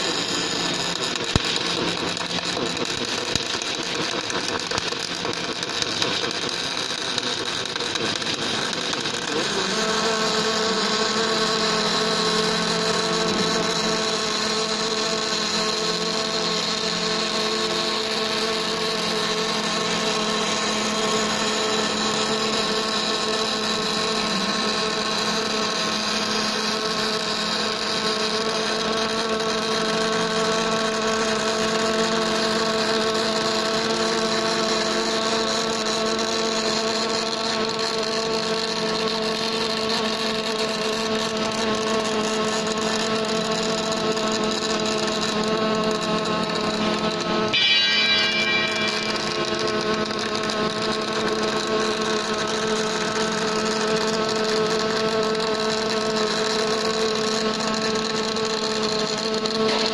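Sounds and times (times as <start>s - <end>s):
welding arc hiss: 0.0s - 19.4s
welding machine hum and tones: 0.0s - 59.9s.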